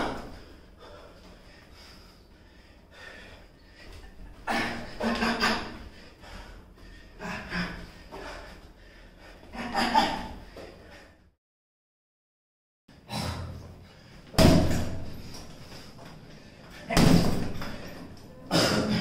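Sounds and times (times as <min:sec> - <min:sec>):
man breathing sharply: 0:00.1 - 0:05.0, 0:05.6 - 0:09.6.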